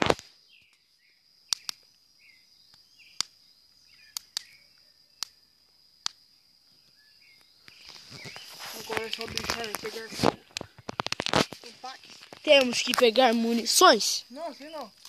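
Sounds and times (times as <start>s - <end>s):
high insect drone: 0.0s - 15.0s
dry branches crackling: 7.6s - 15.0s.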